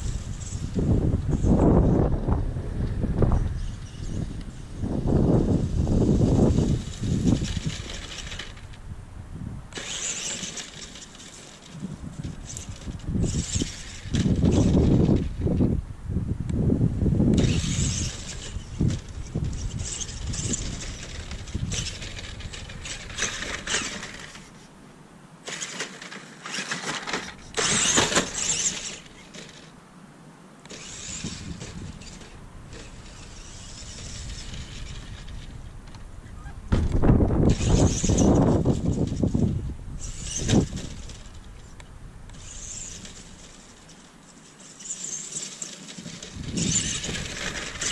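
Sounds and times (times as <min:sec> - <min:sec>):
electric motors whining: 0:09.7 - 0:15.6, 0:17.3 - 0:24.7, 0:25.5 - 0:29.7, 0:30.6 - 0:47.9.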